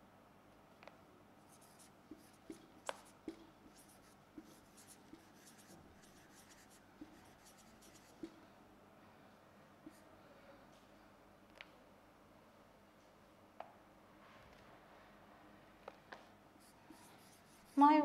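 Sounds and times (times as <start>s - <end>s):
marker squeaking on whiteboard: 1.5s - 8.4s, 16.6s - 18.0s
marker tip tapping: 2.1s - 3.8s.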